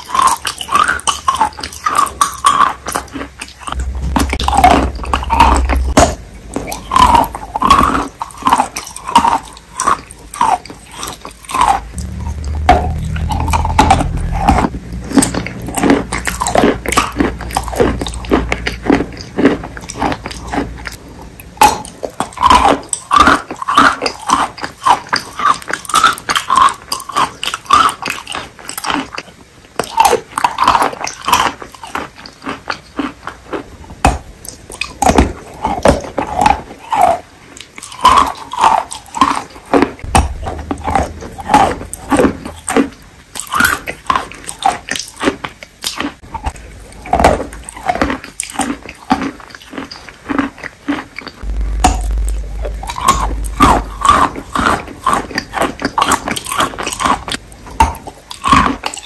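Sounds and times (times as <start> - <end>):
wet chewing mouth clicks: 0.0 - 59.0
low rumble: 3.7 - 8.0, 11.6 - 21.0, 40.0 - 43.2, 51.4 - 55.9.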